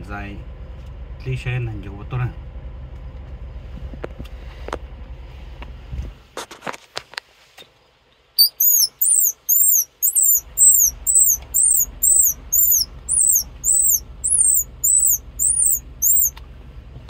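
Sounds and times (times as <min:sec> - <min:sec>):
squirrel call whistled chirps: 0:08.4 - 0:16.4.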